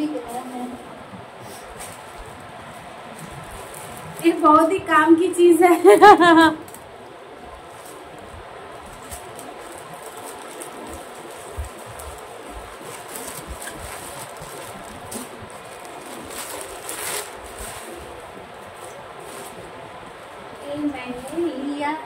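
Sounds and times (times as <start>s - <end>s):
plastic bag crinkling: 7.7s - 19.8s.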